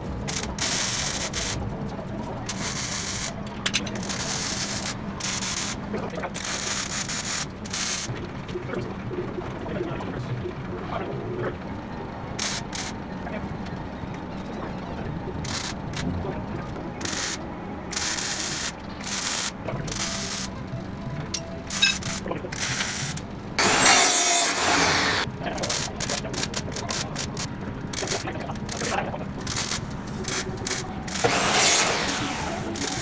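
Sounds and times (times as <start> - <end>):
chop saw cutting steel: 23.6 - 25.3, 31.1 - 33.0.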